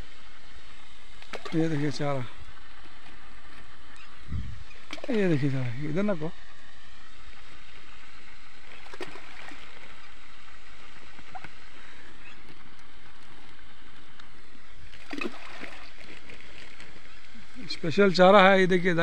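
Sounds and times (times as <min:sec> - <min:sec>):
groundbait splashing into water: 0:01.2 - 0:02.0, 0:04.8 - 0:05.2, 0:08.7 - 0:09.9, 0:14.9 - 0:16.2.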